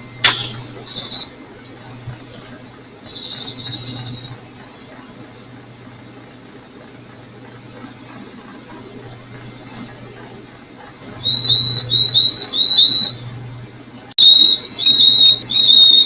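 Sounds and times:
songbird chirping: 10.7 - 13.4, 14.2 - 16.0.

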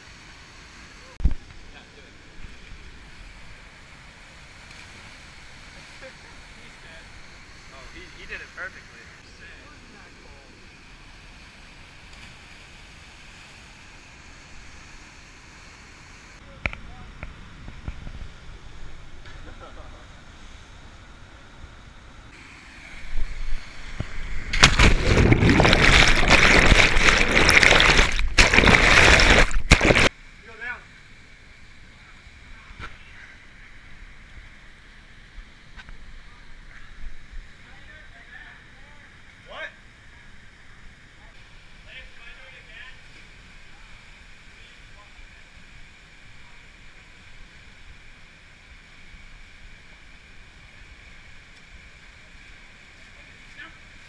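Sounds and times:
rushing air: 20.2 - 30.1
churning water and bubbles underwater: 23.2 - 30.1
splash into water: 24.1 - 30.1.

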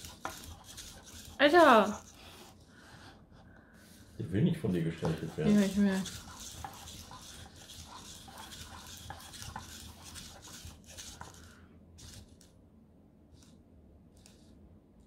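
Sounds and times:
small servo motors whirring: 0.0 - 2.2, 4.7 - 12.4.

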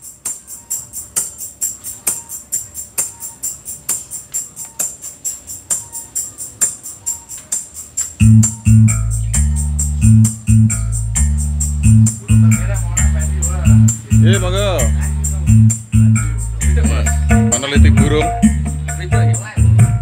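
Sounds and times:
high-pitched beat: 5.7 - 20.0
heavy bass line: 8.2 - 20.0.

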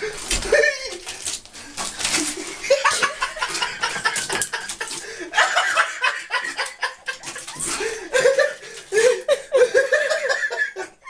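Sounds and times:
person laughing: 0.4 - 1.1, 2.3 - 11.0.

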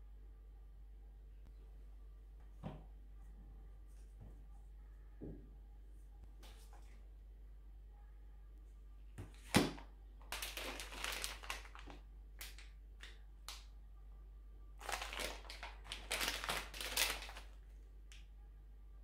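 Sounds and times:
plastic bags crinkling: 9.5 - 12.7, 14.8 - 17.6.

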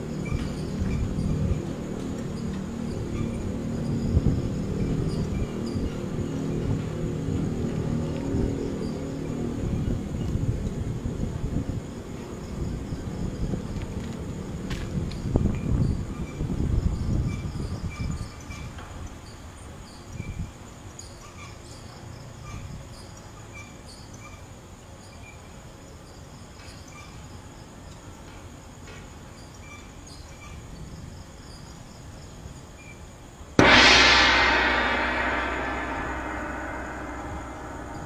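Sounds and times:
insects chirping: 0.0 - 33.3
sudden loud hit: 33.6 - 38.0.

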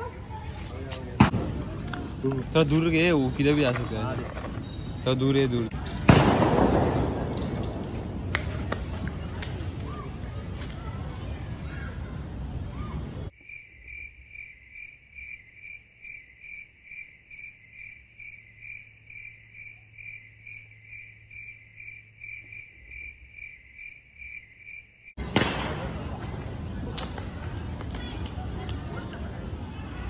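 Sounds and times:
firecracker crack: 1.0 - 3.2, 5.7 - 9.9, 25.2 - 28.8
cricket chirping sound effect: 13.4 - 25.2.

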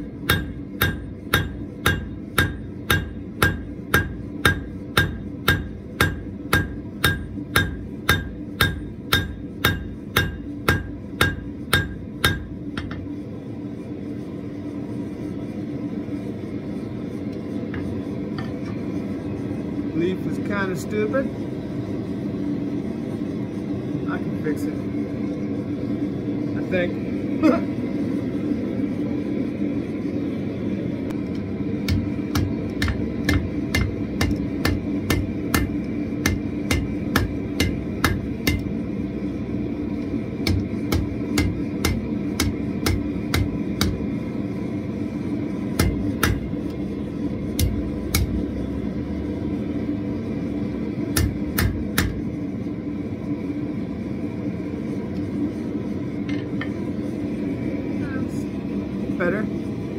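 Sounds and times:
hammer striking steel on anvil: 0.0 - 13.1, 31.8 - 38.8, 40.4 - 44.0, 45.7 - 46.5, 47.6 - 48.4, 51.1 - 52.2
gas forge rushing: 0.0 - 59.9.

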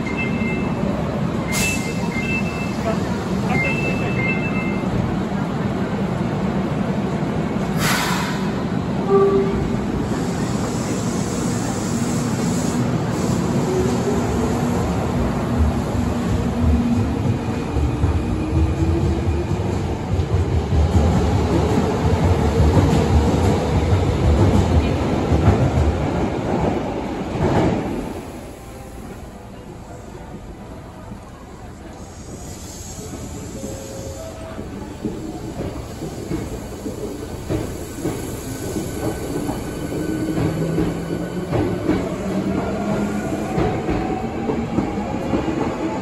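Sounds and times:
brief tone: 0.0 - 0.9
train wheels rumbling on rails: 0.0 - 46.0
air hiss: 7.7 - 8.7, 10.0 - 14.1, 32.0 - 40.3.

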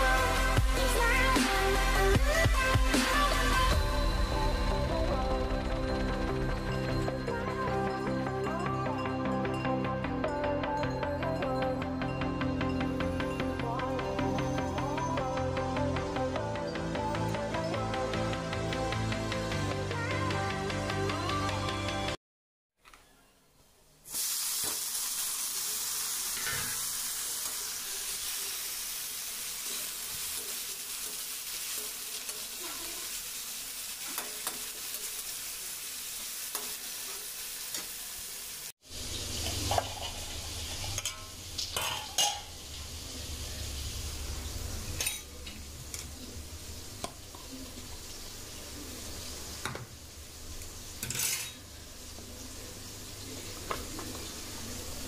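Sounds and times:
vegetables sizzling in oil: 24.0 - 55.0
metal spatula scraping a pan: 51.0 - 51.6.

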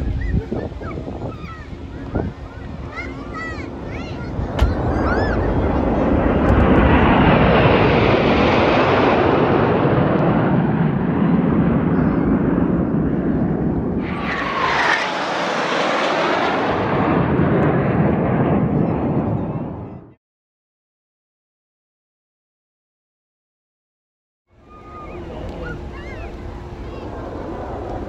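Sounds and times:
jet aircraft flying past: 0.0 - 20.2, 24.6 - 28.0
jets falling whine: 4.4 - 11.1, 11.8 - 19.3.

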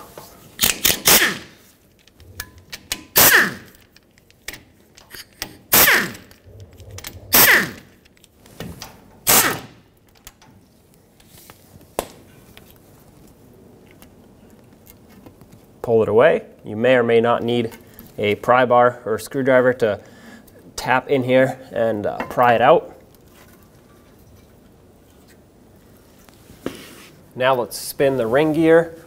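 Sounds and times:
power tool whirring: 3.2 - 3.8, 5.7 - 6.3, 7.1 - 7.9.

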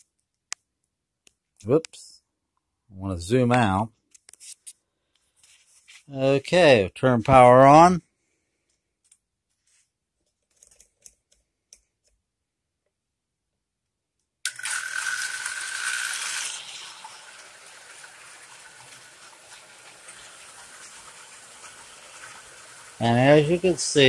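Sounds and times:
model trains running: 14.5 - 24.0.

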